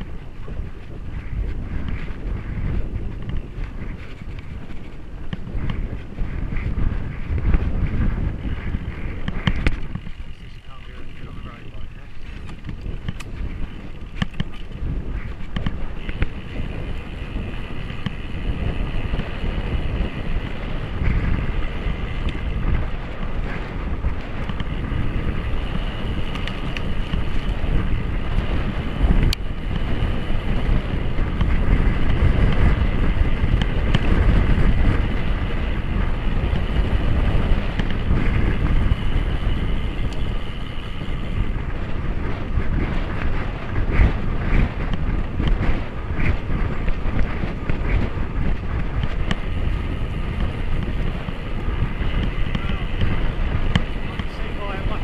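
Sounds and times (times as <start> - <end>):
bicycle tyre rumble: 0.0 - 55.0
wind rushing over microphone: 0.0 - 55.0.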